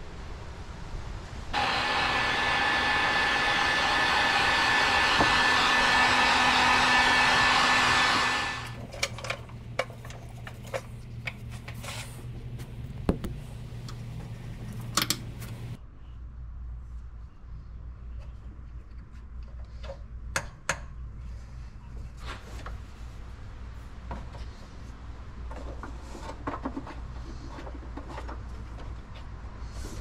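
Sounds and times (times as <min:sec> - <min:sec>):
heat gun blowing: 0:01.6 - 0:08.8
sharp clicks and light knocks: 0:14.8 - 0:15.6.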